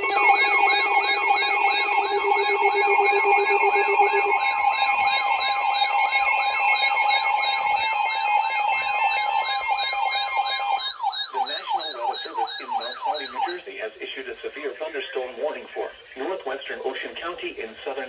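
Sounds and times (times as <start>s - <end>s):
steady two-tone attention signal: 0.0s - 13.6s
warbling alarm tones: 0.0s - 13.6s.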